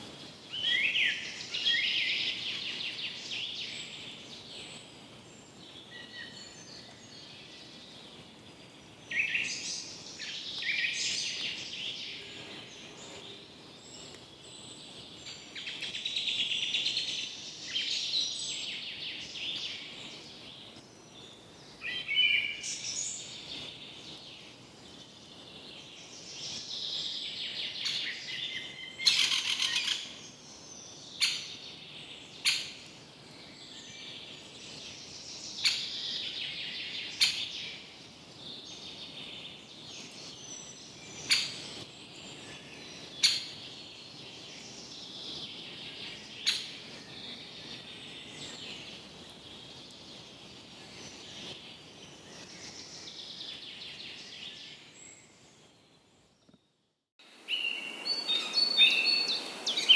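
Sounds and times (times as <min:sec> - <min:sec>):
birds chirping and calling: 0:25.9 - 0:32.9, 0:34.9 - 0:37.9, 0:38.6 - 0:54.9.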